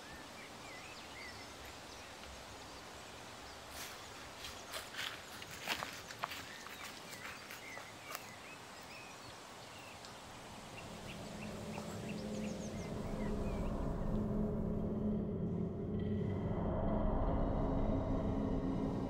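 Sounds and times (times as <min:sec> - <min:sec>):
small birds chirping: 0:00.0 - 0:14.5
footsteps crunching in dry leaves: 0:03.6 - 0:09.1
low steady drone: 0:10.4 - 0:19.0.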